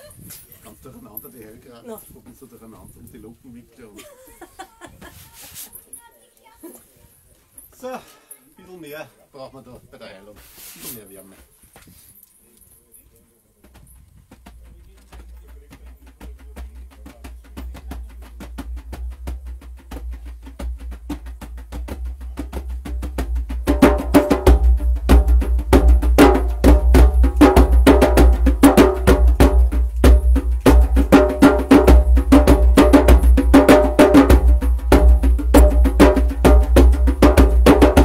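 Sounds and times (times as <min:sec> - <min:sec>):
djembes played by hand: 0:13.6 - 0:38.0.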